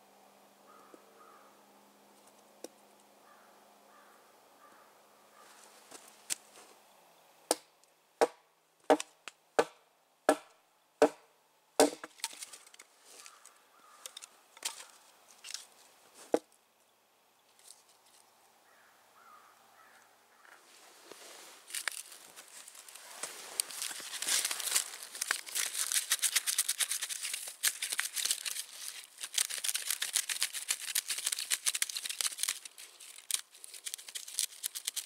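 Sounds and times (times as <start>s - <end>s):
rustling: 5.4s - 6.8s, 12.1s - 16.4s, 17.5s - 18.4s, 19.8s - 35.0s
hatchet chopping firewood: 7.5s - 11.2s, 11.8s - 12.3s.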